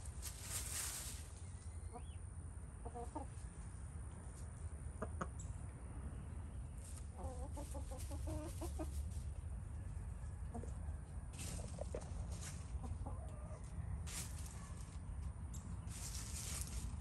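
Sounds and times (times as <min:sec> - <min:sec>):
hen clucking: 0:01.6 - 0:03.8, 0:04.9 - 0:05.6, 0:06.8 - 0:09.5, 0:10.4 - 0:16.7.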